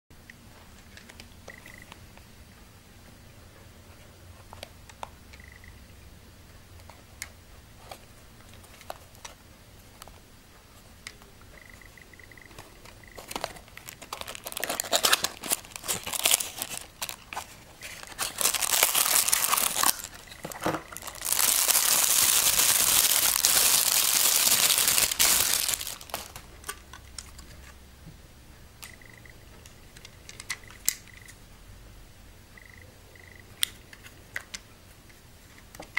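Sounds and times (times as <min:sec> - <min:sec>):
plastic packaging crinkling: 0:12.8 - 0:27.4.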